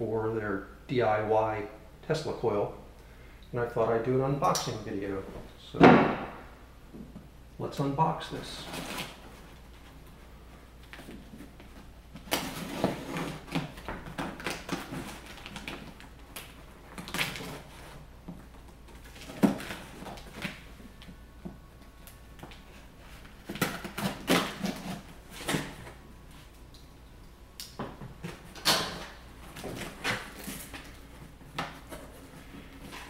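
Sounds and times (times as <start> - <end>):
knife slicing packing tape: 23.5 - 25.7.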